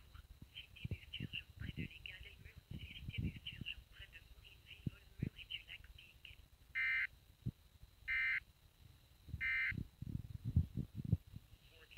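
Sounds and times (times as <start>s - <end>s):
warbling data tone bursts: 6.8s - 7.1s, 8.0s - 8.4s, 9.4s - 9.8s.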